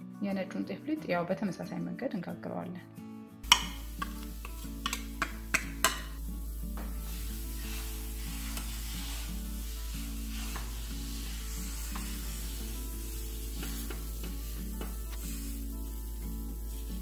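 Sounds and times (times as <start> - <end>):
background music: 0.0 - 17.0
batter sizzling on griddle: 3.4 - 17.0.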